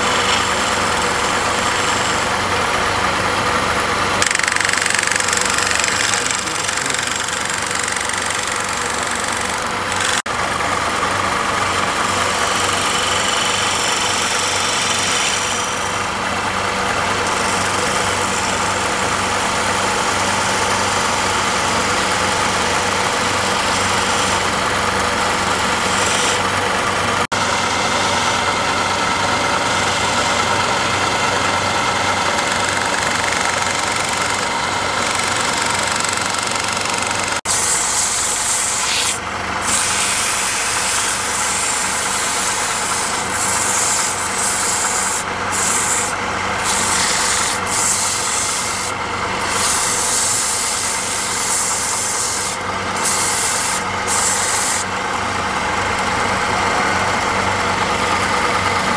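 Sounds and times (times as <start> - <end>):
chisel cutting spinning wood: 0.0 - 58.9
wood lathe humming: 0.0 - 58.9
sandpaper hissing on turning wood: 12.4 - 16.0, 25.9 - 26.4, 37.5 - 54.9.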